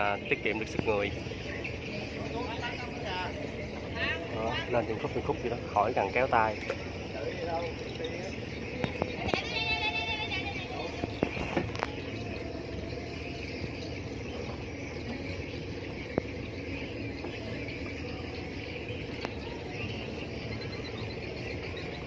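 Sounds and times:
winch whine: 0.0 - 22.0.

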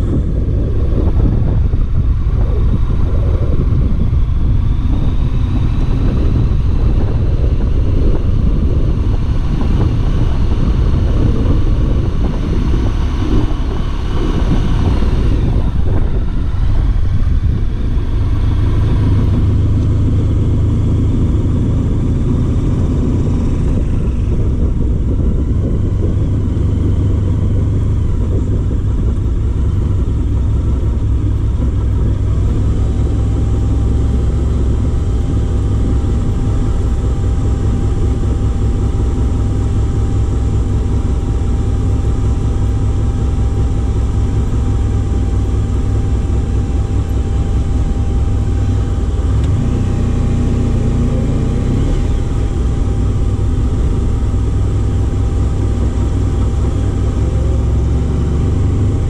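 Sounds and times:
motorcycle engine low rumble: 0.0 - 59.0.

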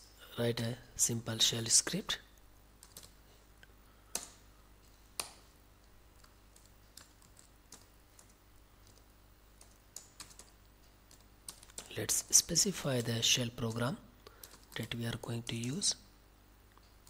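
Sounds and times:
low steady hum: 0.0 - 17.0
computer keyboard keystrokes: 2.8 - 3.2, 4.1 - 4.4, 5.2 - 5.4, 6.2 - 9.0, 9.6 - 13.2, 14.3 - 15.8.

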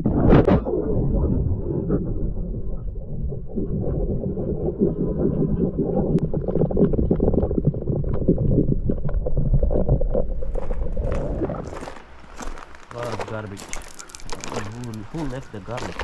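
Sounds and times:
underwater rumble of moving water: 0.0 - 12.4
small underwater clicks and crackles: 3.5 - 16.0.

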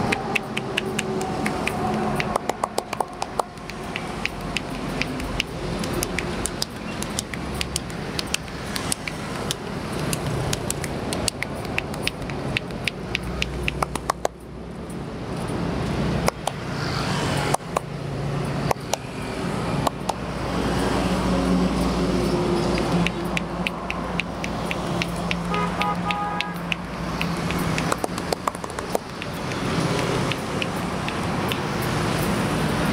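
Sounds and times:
roadside traffic: 0.0 - 32.9
hands slapping bare back: 0.1 - 14.3, 22.8 - 31.7.

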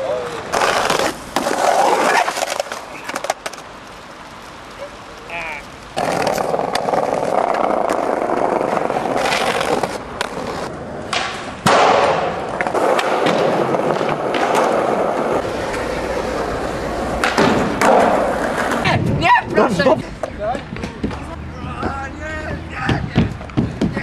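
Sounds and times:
skateboard wheels rolling on concrete: 0.0 - 24.0
skateboard clacks and knocks: 6.0 - 19.2, 22.8 - 24.0.

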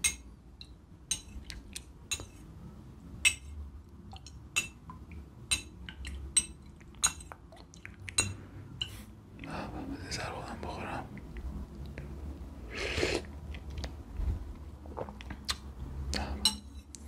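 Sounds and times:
spoon clinking ceramic bowl: 0.0 - 1.4, 3.2 - 3.5, 4.2 - 4.8, 5.5 - 7.3, 8.1 - 9.0, 16.4 - 16.9.

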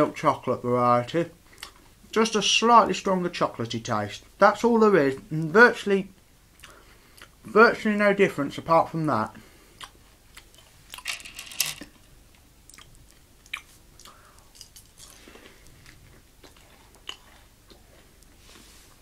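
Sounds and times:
chewing crunchy candy: 12.7 - 18.4.

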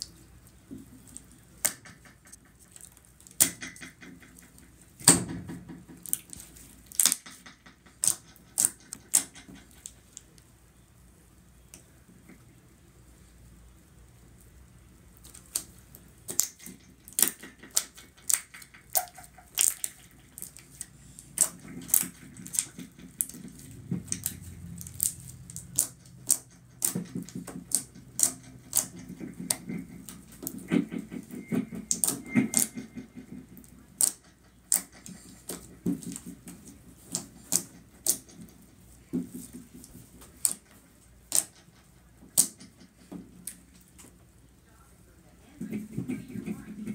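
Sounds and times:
slime squelching: 15.2 - 43.6.

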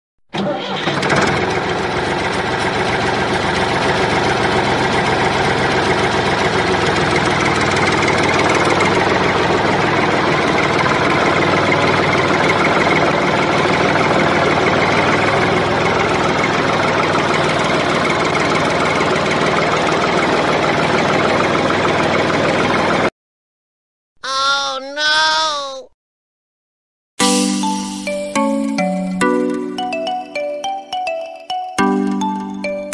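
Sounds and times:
tractor engine idling: 0.4 - 23.1.

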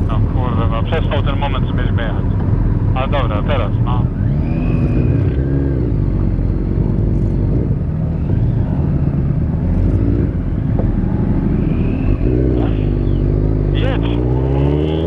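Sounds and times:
motorcycle engine pulling away: 4.0 - 15.0.

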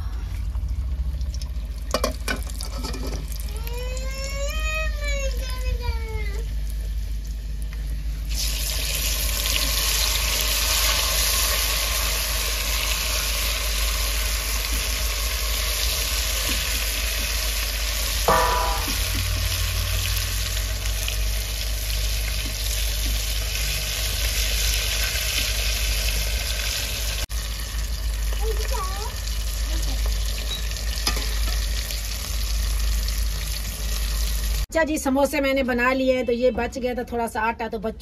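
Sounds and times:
food deep-frying in oil: 0.0 - 34.8.

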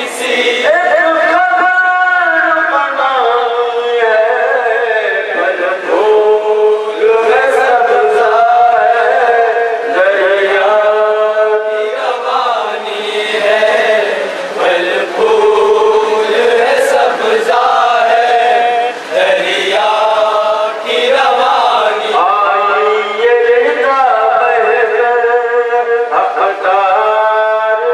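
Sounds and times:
man chanting a lament: 0.0 - 27.9.

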